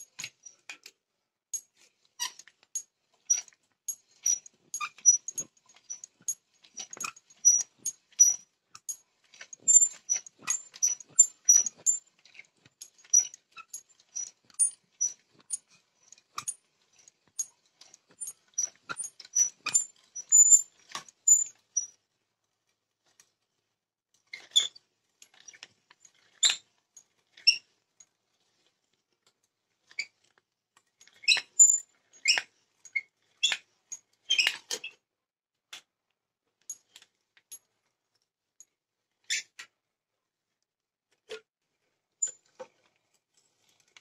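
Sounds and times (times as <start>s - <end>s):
auger bit boring into wood: 3.9s - 8.4s, 9.6s - 12.0s.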